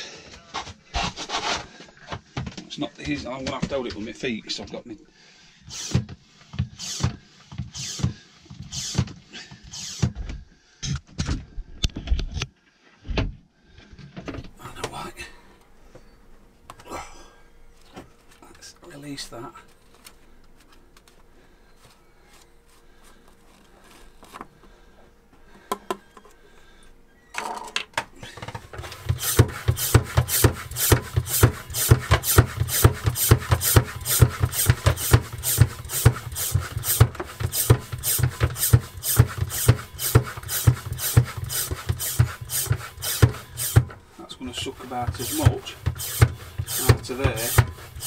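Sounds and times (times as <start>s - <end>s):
hand pump rasping strokes: 5.7s - 9.1s, 9.7s - 10.1s, 28.2s - 48.0s.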